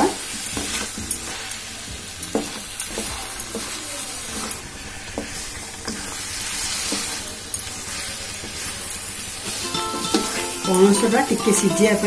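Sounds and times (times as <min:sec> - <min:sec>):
food sizzling in a pan: 0:00.0 - 0:12.0
spatula scraping and knocking pan: 0:00.5 - 0:08.8.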